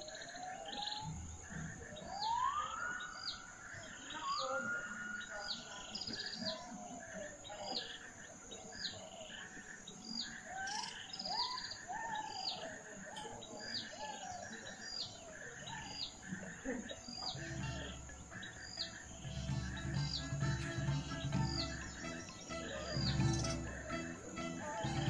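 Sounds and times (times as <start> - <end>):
birds with gliding whistles: 0.0 - 25.0.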